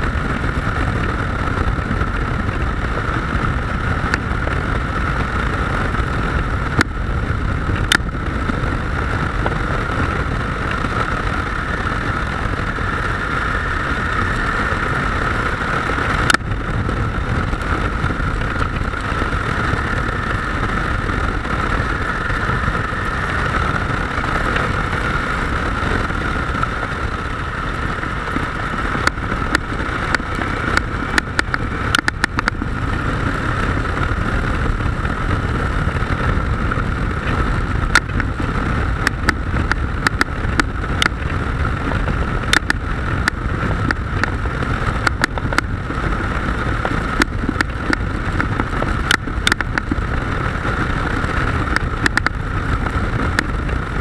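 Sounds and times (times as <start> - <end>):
motorcycle engine drone: 0.0 - 54.0
wind rush on microphone: 0.0 - 54.0
sharp ticks and knocks: 7.7 - 8.6, 16.1 - 25.0, 26.0 - 32.7, 37.2 - 38.4, 39.0 - 41.4, 42.5 - 44.4, 45.0 - 45.7, 46.8 - 50.0, 51.2 - 53.6.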